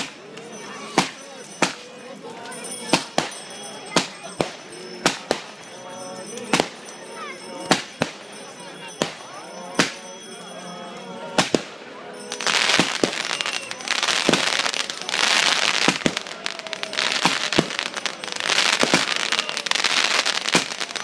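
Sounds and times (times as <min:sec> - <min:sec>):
firework crackling: 0:12.3 - 0:21.0
firework bangs: 0:12.4 - 0:21.0.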